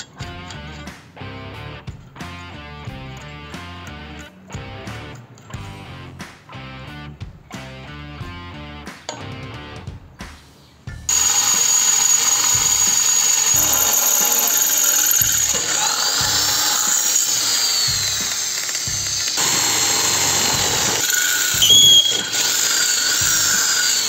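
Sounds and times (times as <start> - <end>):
background music with steady beat: 0.0 - 24.0
drill bit squealing in metal: 11.1 - 24.0.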